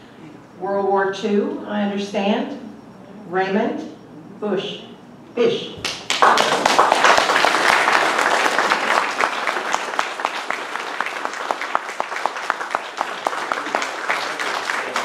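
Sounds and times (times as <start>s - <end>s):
audience applauding: 5.8s - 15.0s
sharp close hand claps: 5.8s - 15.0s.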